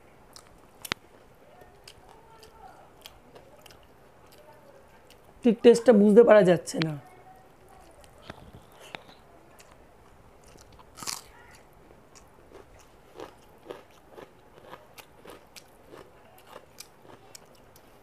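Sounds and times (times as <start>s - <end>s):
person chewing food: 0.3s - 5.3s, 10.4s - 18.0s
crunching bites: 10.4s - 17.9s.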